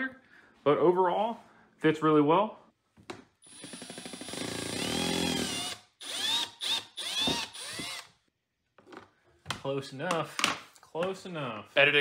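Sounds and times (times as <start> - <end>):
cordless drill running: 3.4 - 8.2.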